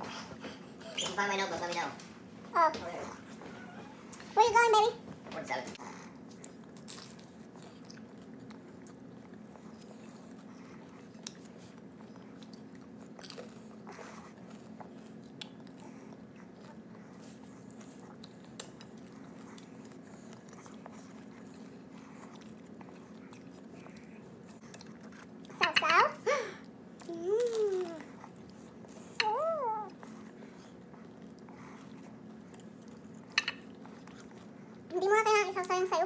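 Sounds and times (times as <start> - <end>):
steady low hum: 0.0 - 36.0
chewing and mouth noises: 5.7 - 25.9, 26.6 - 36.0.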